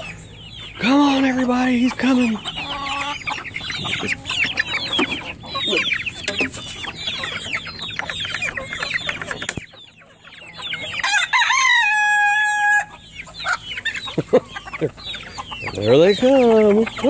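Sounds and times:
chickens clucking: 0.0 - 17.0
rooster crowing: 10.8 - 13.0.

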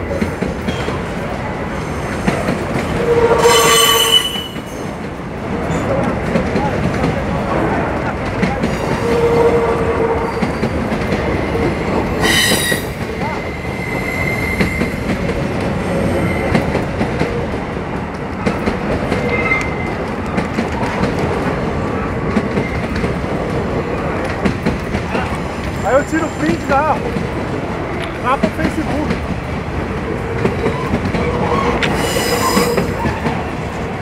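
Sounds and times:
freight train rumble and clatter: 0.0 - 34.0
high wheel squeal: 3.0 - 4.8, 12.2 - 15.0, 30.7 - 33.2.

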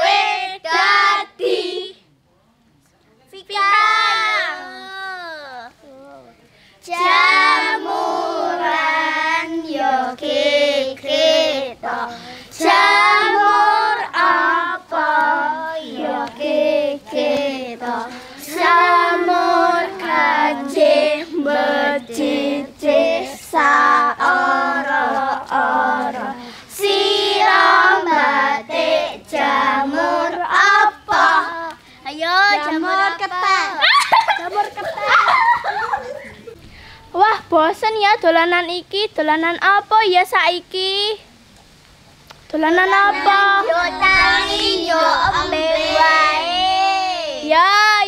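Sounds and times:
children singing: 7.0 - 33.8, 43.0 - 47.3.

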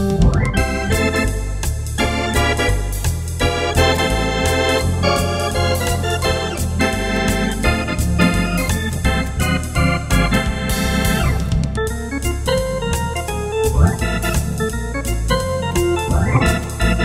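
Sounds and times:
electronic organ swing music: 0.0 - 17.0
pedal bass notes: 0.0 - 17.0.

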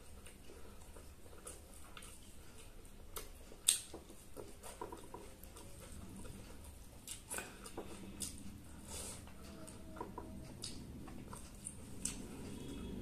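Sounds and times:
chewing: 0.0 - 13.0.

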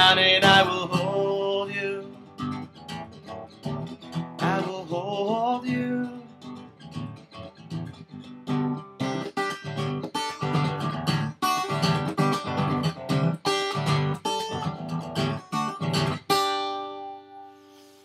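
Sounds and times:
acoustic guitar strumming: 0.0 - 18.0.

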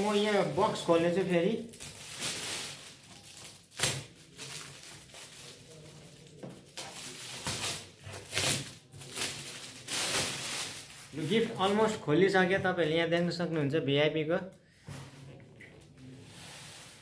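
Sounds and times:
gift wrap rustling and crinkling: 0.0 - 12.1.

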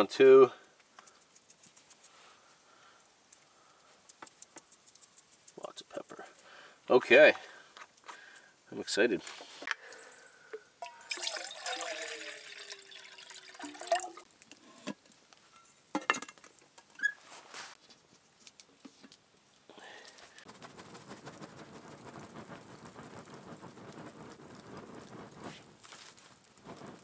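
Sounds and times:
campfire crackling hiss: 0.0 - 27.0
metal pot clinking: 10.5 - 16.5
water pouring into metal pot: 10.8 - 15.1.

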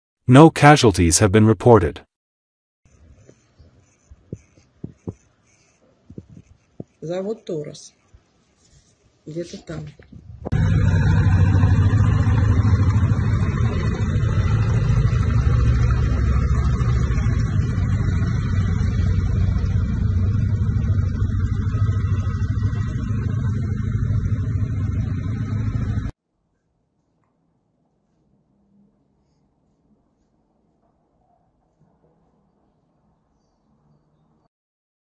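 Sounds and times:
helicopter low rumble: 10.2 - 26.1.

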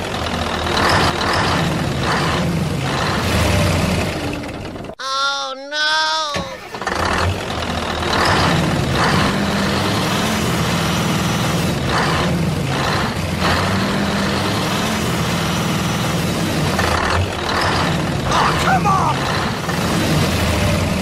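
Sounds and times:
diesel truck engine running: 0.0 - 5.0, 6.1 - 21.0.

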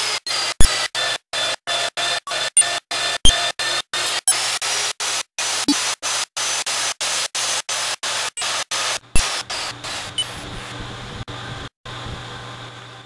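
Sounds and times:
core drill cutting steel: 0.0 - 7.2, 8.1 - 10.4.

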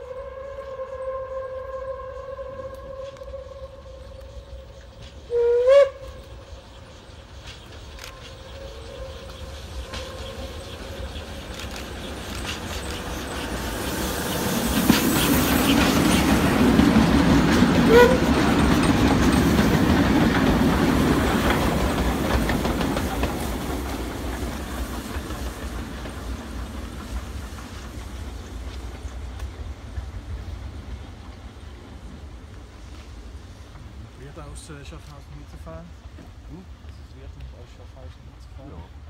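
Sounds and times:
steam train rumbling past: 0.0 - 39.0
wheels clicking over rail joints: 14.7 - 31.5.

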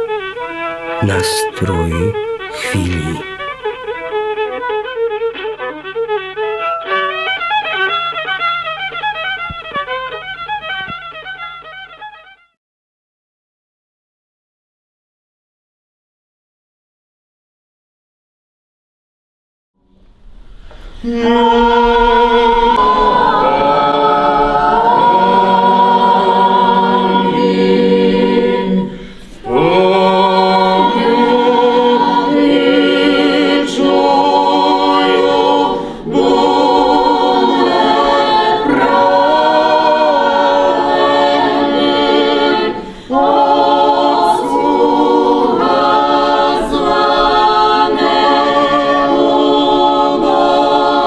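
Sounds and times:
choir chanting unaccompanied: 1.0 - 3.4, 21.0 - 51.0.

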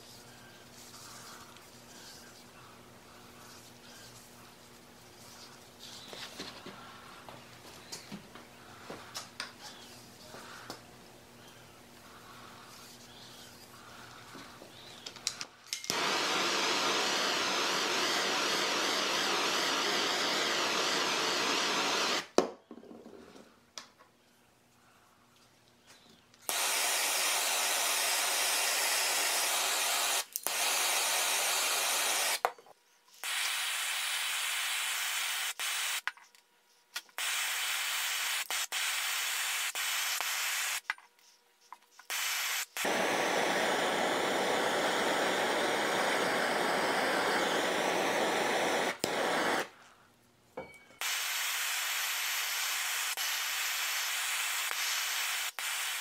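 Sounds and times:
blowtorch hissing: 15.9 - 22.4, 26.5 - 32.4, 33.2 - 36.0, 37.2 - 40.8, 42.1 - 49.8, 51.0 - 56.0.

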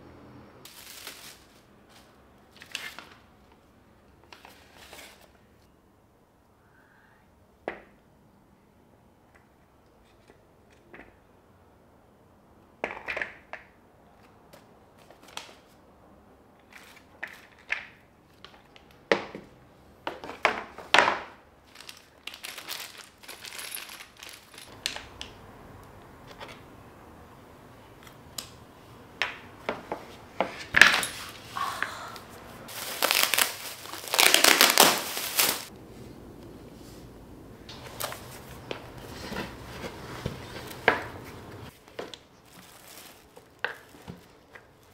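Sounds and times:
plastic wrapping crinkling and tearing: 0.7 - 3.2, 21.6 - 24.7, 32.7 - 35.7, 41.7 - 44.9.

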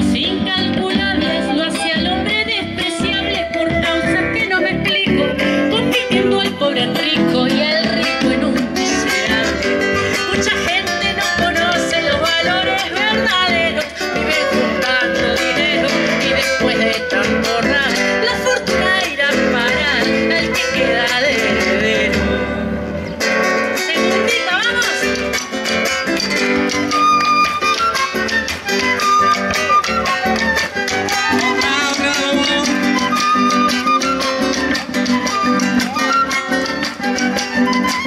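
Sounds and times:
acoustic guitar: 0.0 - 38.0
hand drum: 0.0 - 38.0
flute melody: 1.1 - 8.0, 25.9 - 38.0.

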